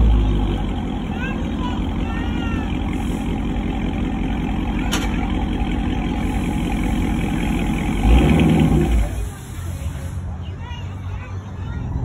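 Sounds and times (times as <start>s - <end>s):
car engine idling: 0.0s - 10.2s.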